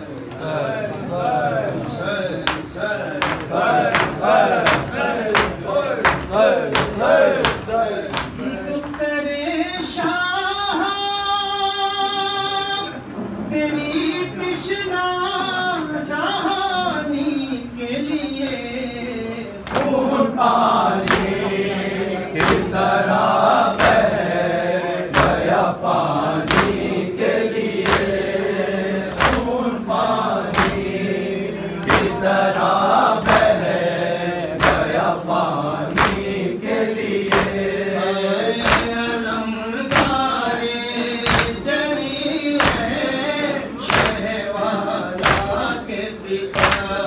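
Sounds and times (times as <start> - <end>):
men chanting together: 0.0 - 10.9, 19.2 - 47.0
hand slaps on chest: 29.1 - 29.5, 35.9 - 36.3.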